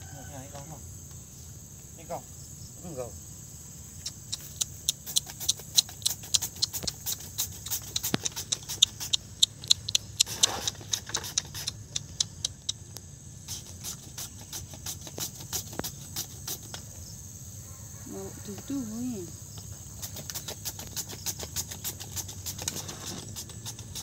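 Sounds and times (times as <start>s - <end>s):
insect chirring: 0.0s - 24.0s
grater scraping fruit: 20.0s - 24.0s.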